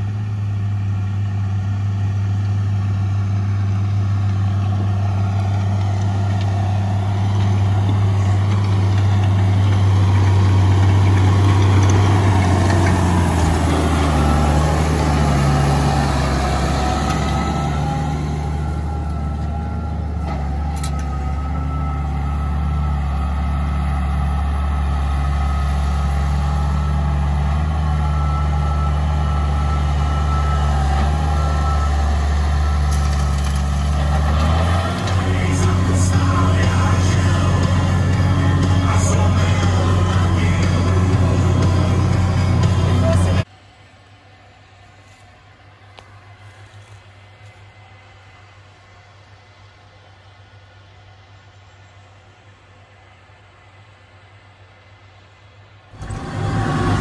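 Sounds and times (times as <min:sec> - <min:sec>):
tractor diesel engine passing: 0:00.0 - 0:43.7, 0:44.5 - 0:57.0
steady high whine: 0:35.0 - 0:57.0.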